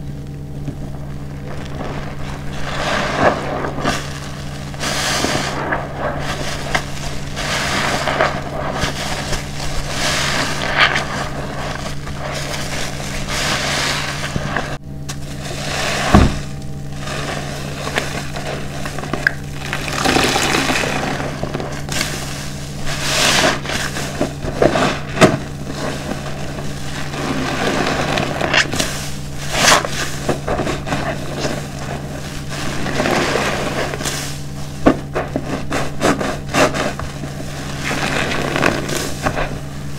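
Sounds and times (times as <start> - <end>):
soapy sponge squelching: 1.2 - 39.9
soapy water pouring into basin: 19.2 - 21.6.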